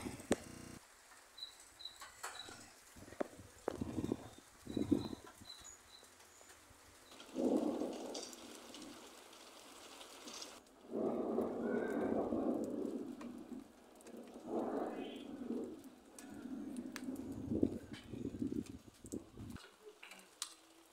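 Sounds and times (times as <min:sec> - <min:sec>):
thunder rumbling: 0:03.0 - 0:05.6, 0:07.0 - 0:19.6.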